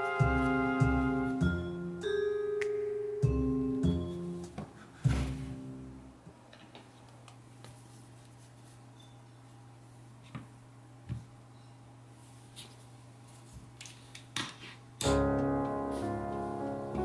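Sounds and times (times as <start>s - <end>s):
music: 0.0s - 6.2s, 15.0s - 17.0s.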